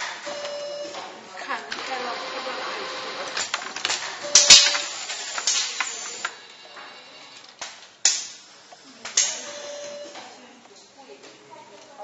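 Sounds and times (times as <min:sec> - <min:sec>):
machine hissing bursts: 0:04.2 - 0:07.2.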